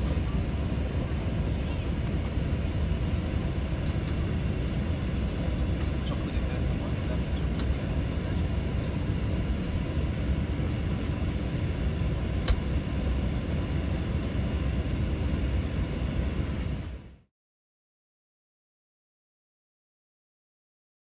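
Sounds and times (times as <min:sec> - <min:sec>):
air conditioning hum in cabin: 0:00.0 - 0:17.3.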